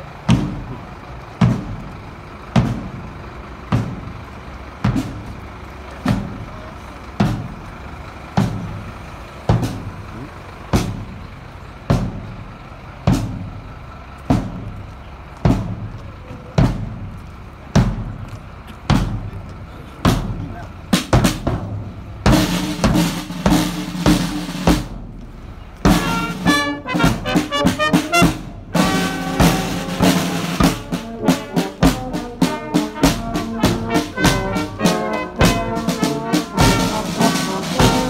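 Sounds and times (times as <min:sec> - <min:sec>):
bass drum beating: 0:18.9 - 0:38.0.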